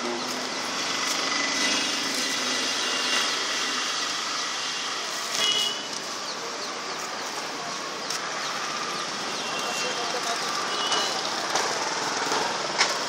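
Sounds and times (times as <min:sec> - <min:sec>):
outdoor background din: 0:00.0 - 0:13.0.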